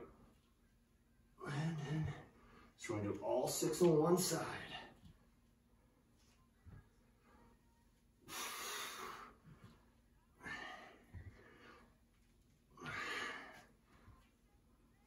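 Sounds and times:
person breathing heavily: 0:08.3 - 0:09.6, 0:10.4 - 0:12.0, 0:12.7 - 0:13.8.

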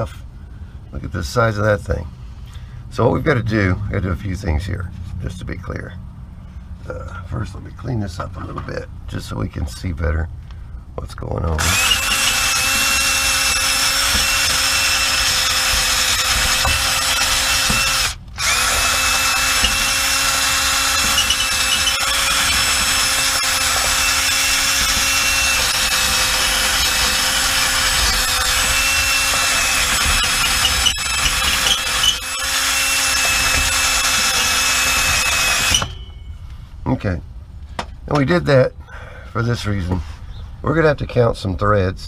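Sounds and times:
handheld power tool motor: 0:11.6 - 0:36.1.

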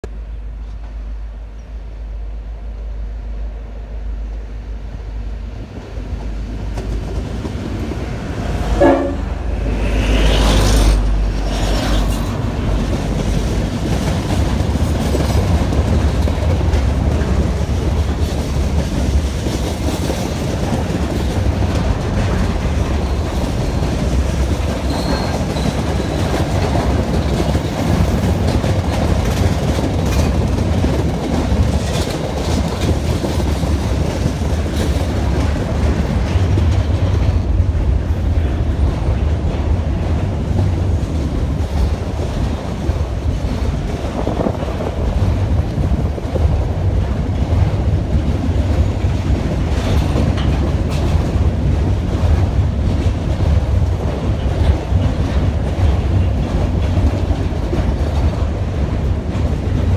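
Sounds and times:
locomotive engines droning: 0:00.0 - 0:19.2
freight wagons rumbling past: 0:05.0 - 0:59.9
train horn note: 0:08.6 - 0:11.1.

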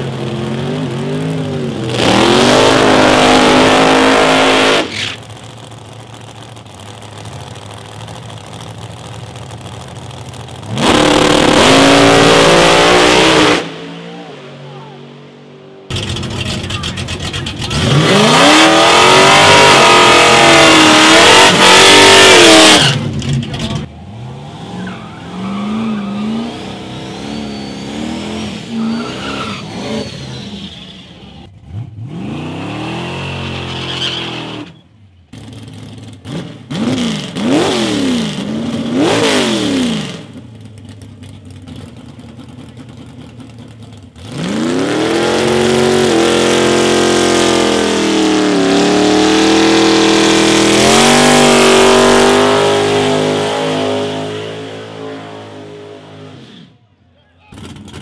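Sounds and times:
engine revving: 0:00.0 - 0:05.5, 0:10.6 - 0:15.0, 0:15.8 - 0:40.4, 0:44.1 - 0:56.8
tyres squealing: 0:24.8 - 0:31.3, 0:33.5 - 0:34.8.

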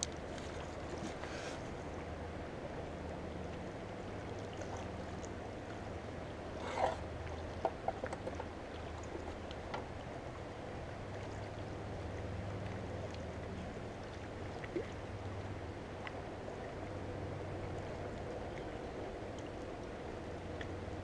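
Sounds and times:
water lapping around boat: 0:00.0 - 0:21.0.

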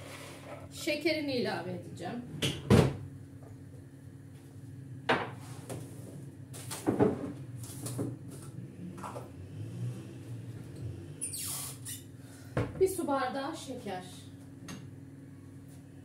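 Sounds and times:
steady low hum: 0:00.0 - 0:11.2
kitchen knocks and clunks: 0:02.4 - 0:03.0, 0:06.7 - 0:08.2.

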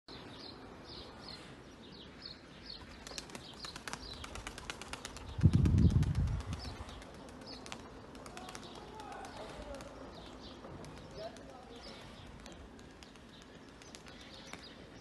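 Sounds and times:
pigeon wings flapping: 0:03.0 - 0:14.7.

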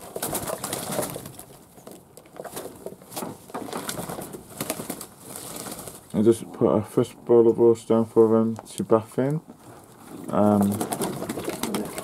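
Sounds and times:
wings flapping: 0:00.0 - 0:01.6, 0:02.4 - 0:06.1, 0:10.1 - 0:12.0
pigeons cooing: 0:10.1 - 0:12.0.

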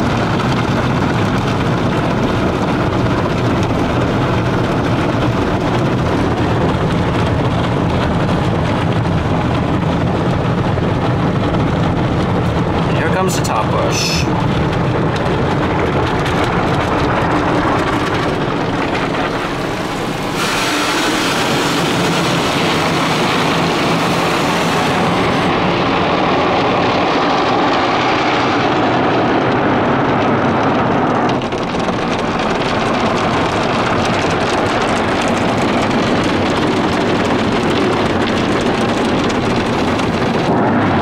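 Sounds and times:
car wash brushes and water spray: 0:18.0 - 0:25.7.

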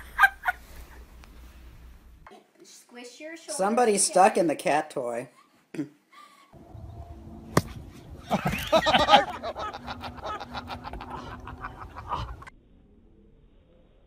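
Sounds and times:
golf club hitting ball: 0:07.4 - 0:08.3
quick laughter-like pulses: 0:08.2 - 0:12.5.

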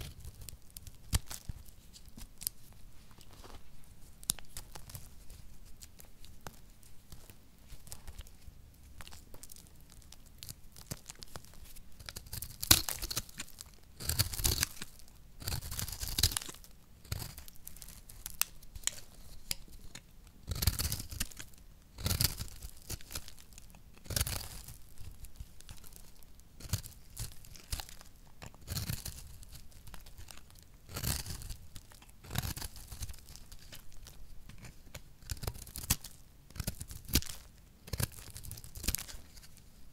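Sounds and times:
soap crumbling between fingers: 0:04.1 - 0:39.7
knife cutting dry soap: 0:12.0 - 0:26.0, 0:26.6 - 0:39.4.

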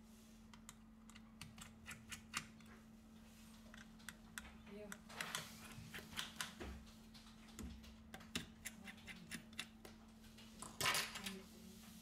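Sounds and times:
faint steady hum: 0:00.0 - 0:12.0
screwdriver clicking and scraping: 0:00.5 - 0:02.7.

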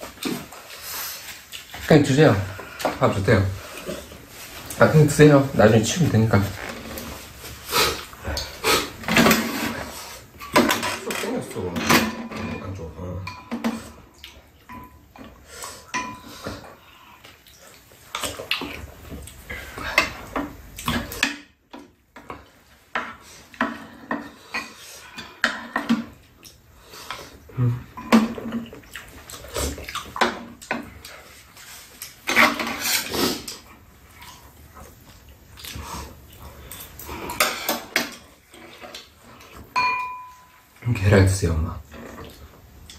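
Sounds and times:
eating sounds: 0:00.0 - 0:10.4, 0:13.6 - 0:21.3, 0:22.2 - 0:39.7
spoons clinking on ceramic bowls: 0:39.7 - 0:40.6.

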